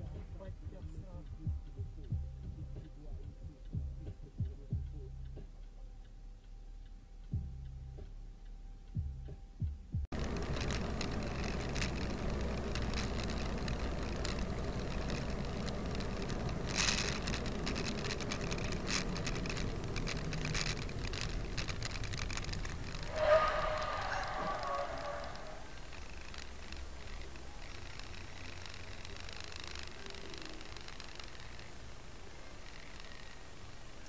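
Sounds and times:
low thumps: 0.0 - 5.6
road and engine noise: 0.0 - 34.0
small clicks and rattles: 10.1 - 34.0.

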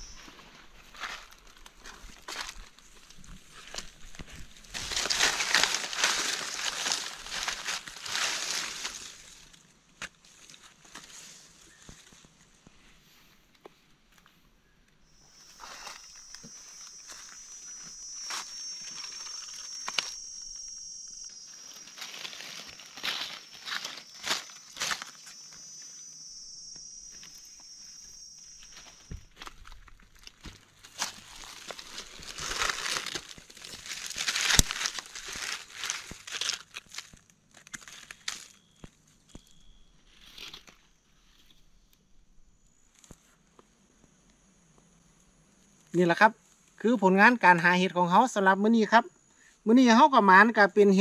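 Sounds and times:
footsteps crunching dry leaves: 0.0 - 12.4, 15.2 - 38.6
high thin insect buzz: 15.1 - 29.5.

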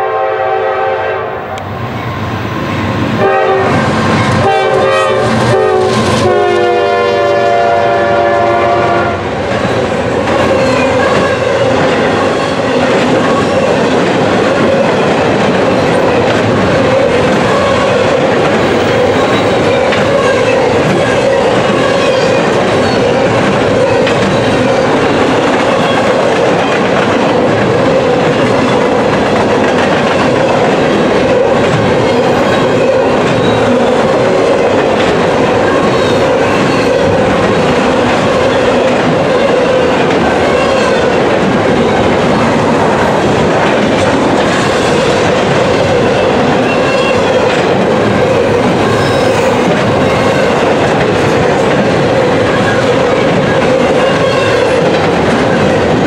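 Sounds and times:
locomotive air horn blasts: 0.0 - 1.6, 3.2 - 9.3
train wheels clacking on rails: 2.0 - 56.0.

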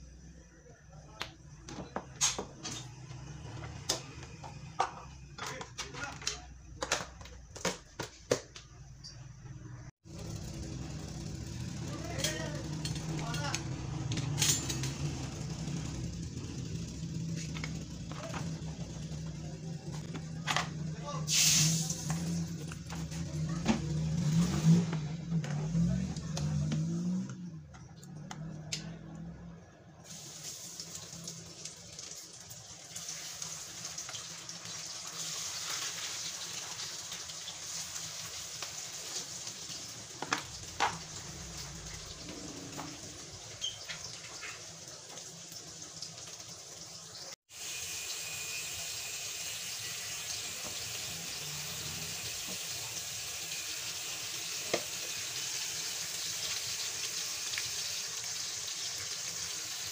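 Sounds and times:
fish frying in hot oil: 10.0 - 14.0, 21.1 - 24.9, 30.0 - 59.9.

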